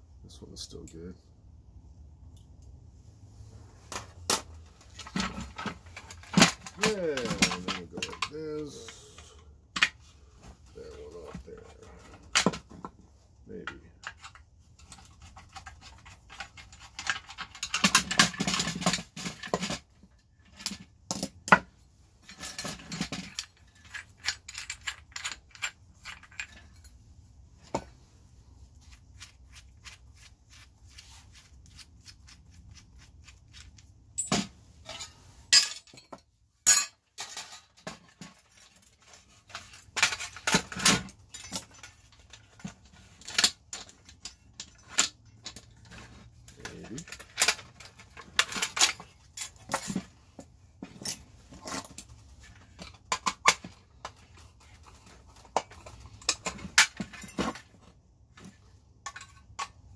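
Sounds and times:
scraping and rattling: 3.7s - 19.9s
metal clicks and scrapes: 13.7s - 19.8s, 28.8s - 34.0s.

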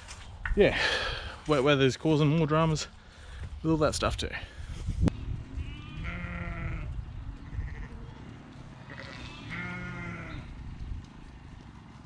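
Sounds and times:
lambs bleating: 5.6s - 10.5s.

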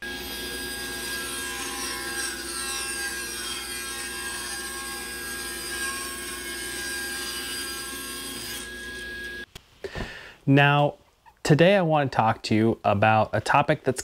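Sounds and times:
table saw ripping wood: 0.0s - 9.4s.

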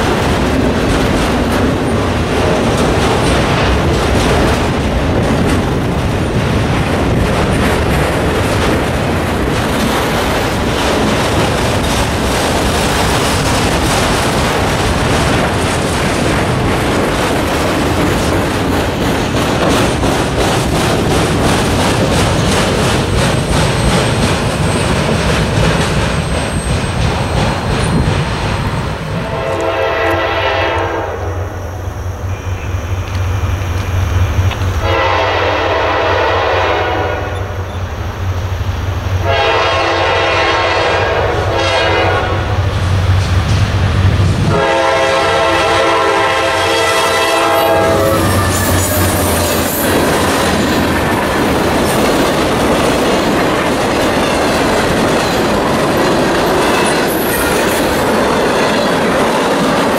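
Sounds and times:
train wheels clattering: 0.0s - 30.9s, 32.8s - 59.9s
locomotive air horn blasts: 29.2s - 31.5s, 34.8s - 37.6s, 39.2s - 42.6s, 44.5s - 49.4s.

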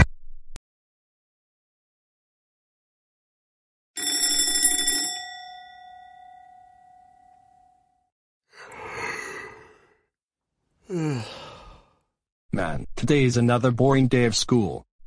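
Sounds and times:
bell ringing: 4.0s - 8.0s
breathy sigh: 8.5s - 10.1s, 10.8s - 12.1s.

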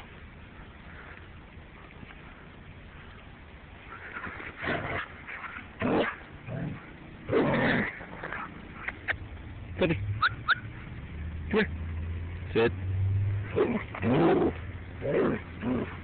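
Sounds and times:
dog yipping: 10.2s - 10.7s.

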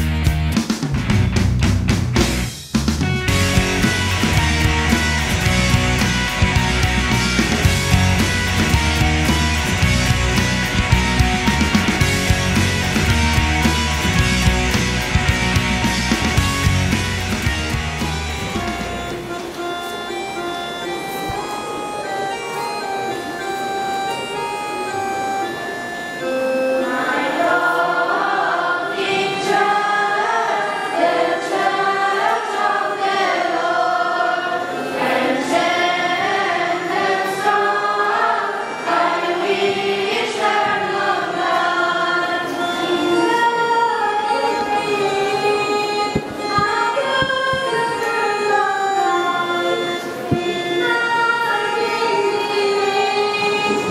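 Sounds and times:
children's choir singing a hymn: 18.2s - 53.9s.

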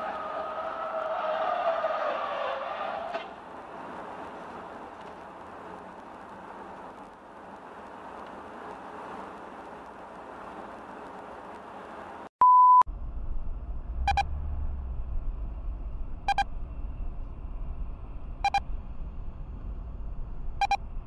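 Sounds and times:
road rumble inside a car: 0.0s - 21.0s
short electronic beeps: 12.4s - 12.8s, 14.1s - 14.3s, 16.3s - 16.5s, 18.4s - 18.6s, 20.6s - 20.8s
loud electronic bleep: 14.1s - 14.3s.

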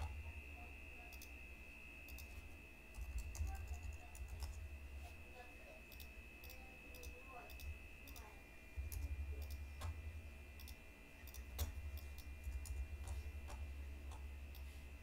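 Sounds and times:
low hum: 0.0s - 15.0s
computer mouse clicks: 1.1s - 1.3s, 2.1s - 2.3s, 5.9s - 8.3s, 8.9s - 10.0s, 10.6s - 14.7s.

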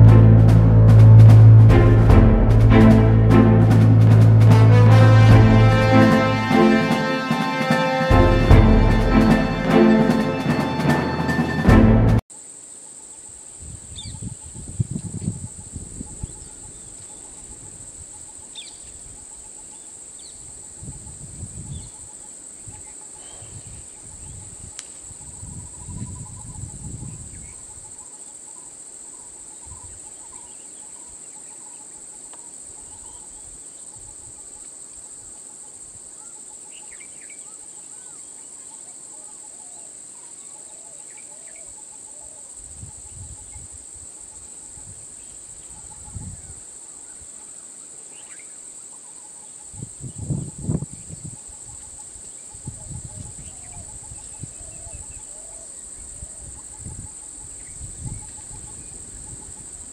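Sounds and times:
low muffled rumbles: 0.0s - 6.4s
insect chorus drone: 12.3s - 59.9s.

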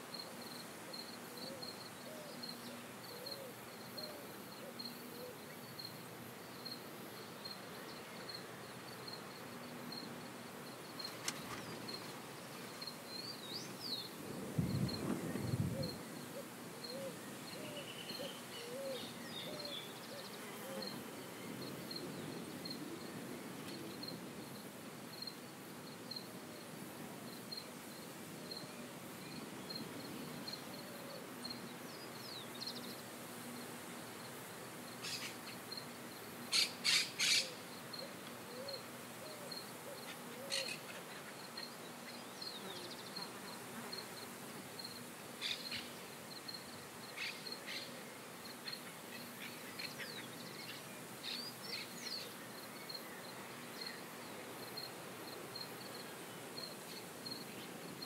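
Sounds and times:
insects: 0.0s - 58.0s
loud sharp bird calls: 36.5s - 37.6s.

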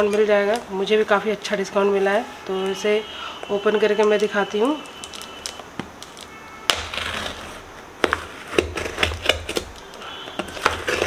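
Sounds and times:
knife scraping cardboard: 6.7s - 11.0s.

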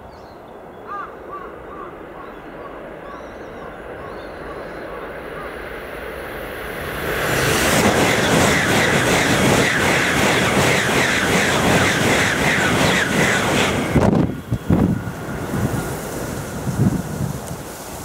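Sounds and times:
high-speed train passing: 0.0s - 18.0s.

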